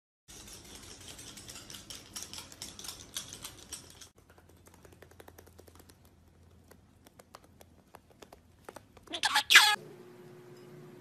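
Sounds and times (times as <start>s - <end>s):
claws clicking on tiled floor: 0.3s - 9.1s
parrot toes tapping on tiles: 1.4s - 9.2s.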